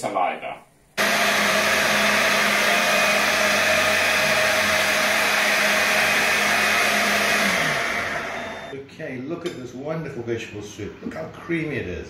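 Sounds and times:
electric blender running: 0:01.0 - 0:08.7.

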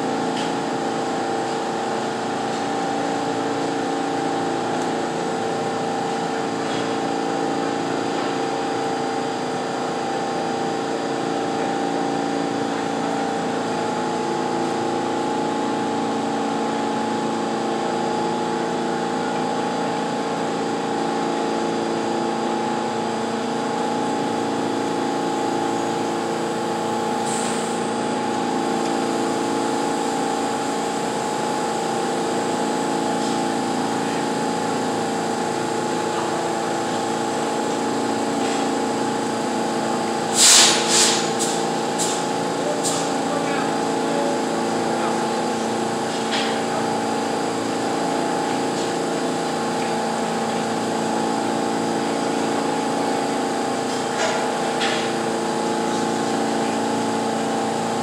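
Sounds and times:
subway car equipment humming: 0:00.0 - 0:58.0
loud hissing bursts: 0:40.2 - 0:43.1.

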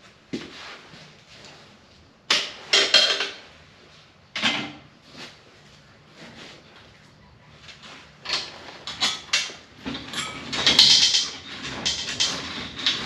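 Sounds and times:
chain lift clanking and grinding: 0:08.2 - 0:13.0.

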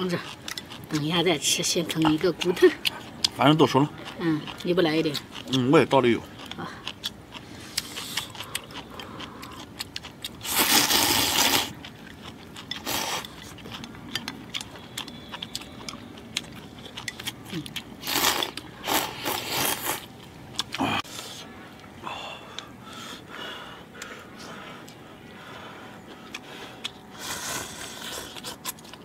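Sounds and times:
chewing: 0:00.0 - 0:21.9, 0:23.9 - 0:29.0
slurping: 0:10.4 - 0:11.8, 0:17.0 - 0:21.5.

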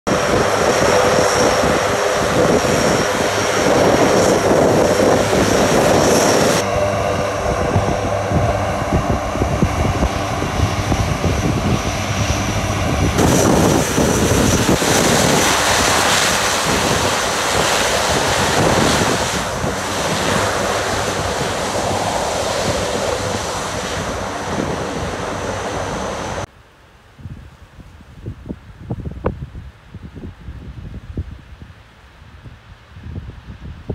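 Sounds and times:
high turbine whine: 0:00.1 - 0:26.5
propeller drone: 0:00.1 - 0:26.5.

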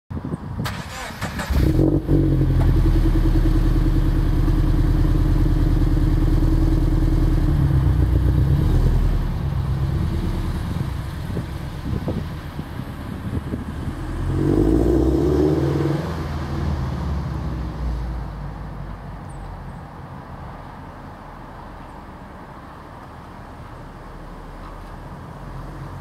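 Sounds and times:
car engine revving loud: 0:01.5 - 0:04.1, 0:13.8 - 0:17.0.

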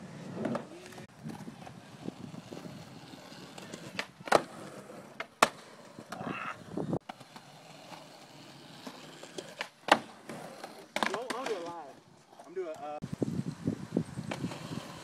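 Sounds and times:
skateboard wheels rolling on concrete: 0:00.0 - 0:15.0
skateboard clacking on ground: 0:03.4 - 0:06.3, 0:08.8 - 0:12.9.

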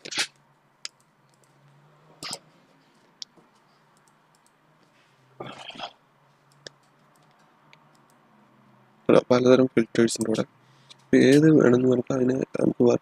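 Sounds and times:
computer mouse clicking: 0:03.2 - 0:04.6, 0:06.5 - 0:08.2, 0:10.1 - 0:11.1.

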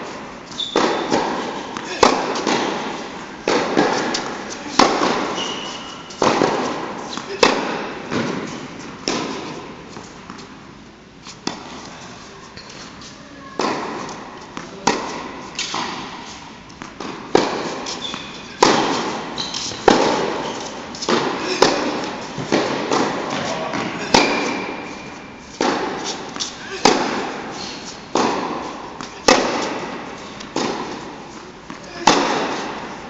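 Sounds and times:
balls bouncing on hard court: 0:00.0 - 0:09.7, 0:13.6 - 0:33.0
tennis balls struck by rackets: 0:00.0 - 0:10.6, 0:11.3 - 0:11.9, 0:13.6 - 0:33.0.

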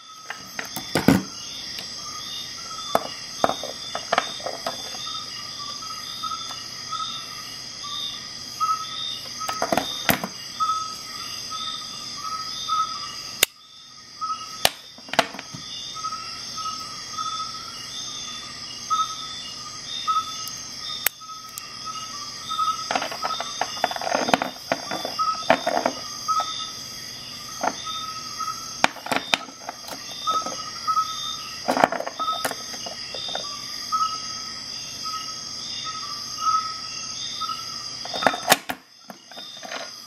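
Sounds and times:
metal tools clicking and clattering: 0:22.9 - 0:26.0, 0:31.7 - 0:33.4.

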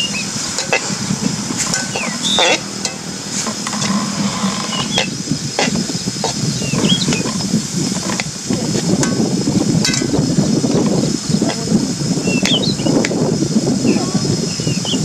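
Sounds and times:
steady hissing rush: 0:00.0 - 0:15.0
metal spatula scraping pan: 0:00.4 - 0:08.3.

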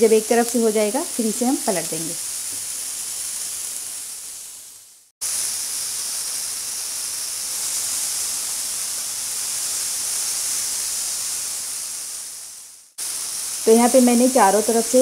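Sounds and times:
kebabs sizzling in oil: 0:00.0 - 0:15.0.

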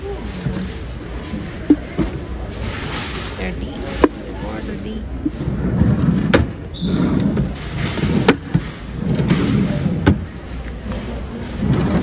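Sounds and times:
drawers sliding on runners: 0:05.3 - 0:12.0.

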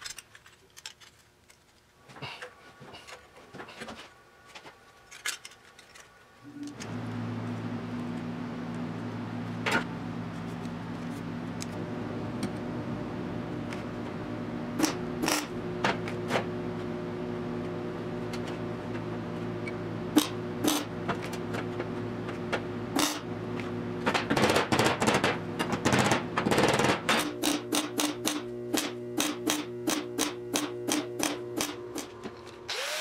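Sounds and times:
low shop hum: 0:01.8 - 0:33.0.

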